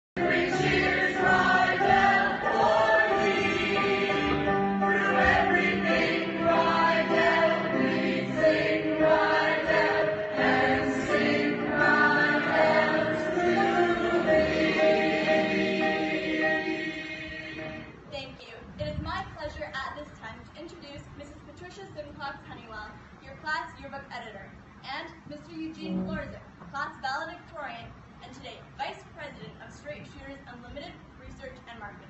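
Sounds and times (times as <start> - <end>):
group of voices singing: 0.2 - 17.9.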